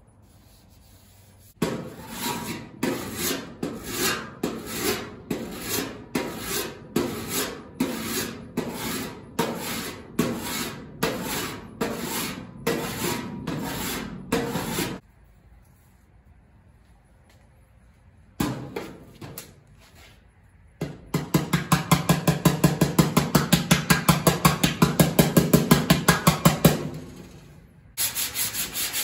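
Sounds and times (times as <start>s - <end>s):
file rasping on sheet metal: 0.6s - 15.0s, 28.0s - 29.0s.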